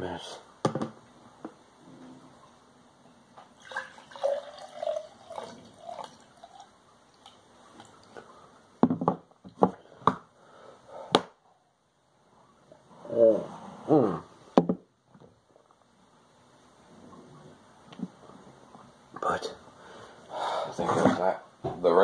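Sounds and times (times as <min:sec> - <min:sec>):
tea pouring into a glass: 0:03.6 - 0:08.1.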